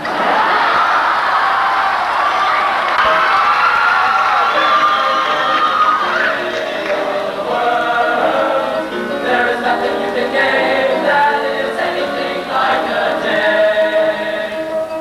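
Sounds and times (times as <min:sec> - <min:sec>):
choir singing: 0:04.3 - 0:15.0.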